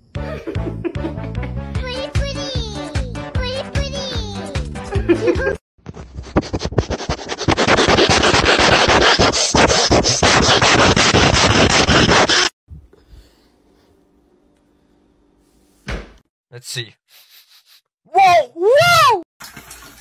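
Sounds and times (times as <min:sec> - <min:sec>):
music: 0:00.0 - 0:05.6
dog sniffing against microphone: 0:17.1 - 0:17.9.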